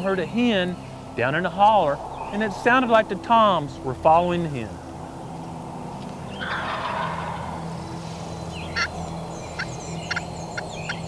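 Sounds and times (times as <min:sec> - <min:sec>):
turkey gobbling: 0:06.3 - 0:07.6, 0:08.6 - 0:11.0.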